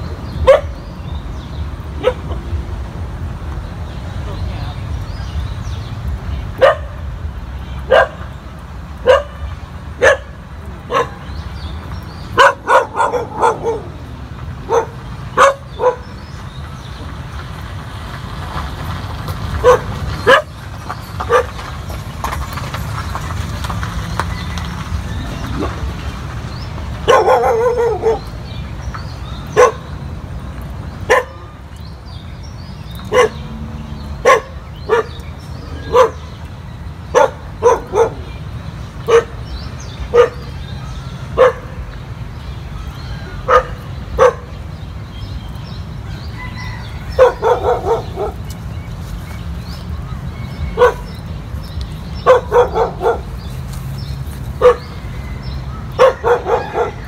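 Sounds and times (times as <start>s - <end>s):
dog barking: 0.4s - 0.8s, 2.0s - 2.4s, 6.6s - 7.0s, 7.9s - 8.2s, 9.0s - 11.2s, 12.4s - 14.0s, 14.6s - 16.1s, 19.6s - 20.5s, 21.3s - 21.5s, 27.0s - 28.3s, 29.6s - 29.9s, 31.1s - 31.4s, 33.1s - 33.4s, 34.2s - 35.2s, 35.8s - 36.2s, 37.1s - 38.3s, 39.1s - 39.4s, 40.1s - 40.5s, 41.4s - 41.7s, 43.5s - 44.5s, 47.1s - 48.5s, 50.8s - 51.1s, 52.2s - 53.3s, 54.6s - 54.9s, 56.0s - 57.0s.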